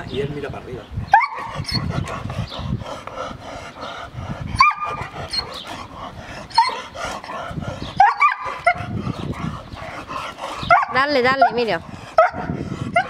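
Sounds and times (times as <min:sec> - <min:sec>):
puppy yipping: 0:06.6 - 0:06.8.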